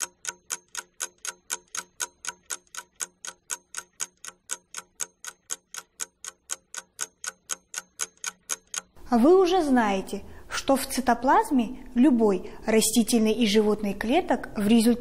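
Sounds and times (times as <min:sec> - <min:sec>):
fast clock ticking: 0:00.0 - 0:09.0.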